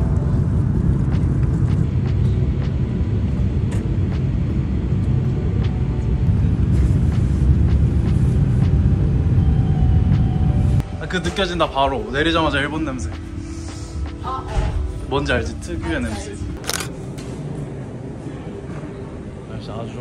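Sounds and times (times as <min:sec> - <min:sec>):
airliner cabin rumble: 0:00.0 - 0:11.5.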